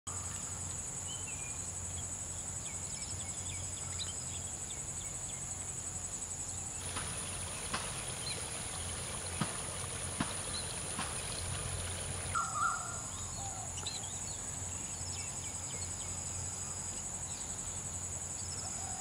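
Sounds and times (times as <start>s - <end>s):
insects trilling high-pitched: 0.1s - 19.0s
low steady hum: 6.7s - 17.4s
faint bird chirps: 6.8s - 16.8s.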